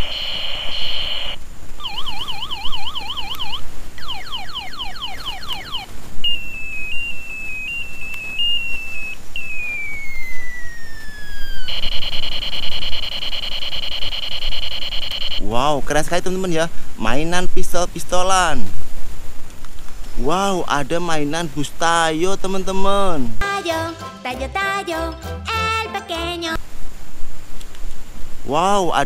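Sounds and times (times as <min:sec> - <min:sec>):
electronic buzzing tone: 0:00.0 - 0:15.4
fast warbling siren: 0:00.0 - 0:15.5
wobbling beep: 0:01.8 - 0:15.4
long falling whistle: 0:01.9 - 0:15.4.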